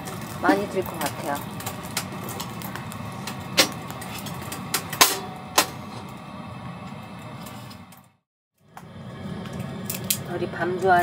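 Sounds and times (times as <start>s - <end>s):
firewood crackling: 0.0s - 8.2s
stove door shutting: 3.2s - 6.1s.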